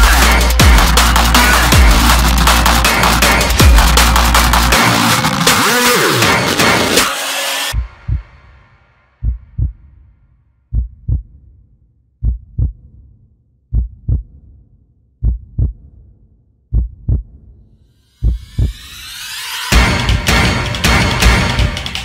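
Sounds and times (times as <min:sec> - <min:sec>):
heartbeat thumps: 0:00.0 - 0:02.4, 0:03.6 - 0:04.2, 0:07.8 - 0:08.3, 0:09.2 - 0:10.0, 0:10.7 - 0:11.5, 0:12.2 - 0:14.6, 0:15.2 - 0:16.1, 0:16.7 - 0:17.6, 0:18.2 - 0:18.9
loud music: 0:00.0 - 0:08.8, 0:18.2 - 0:22.0.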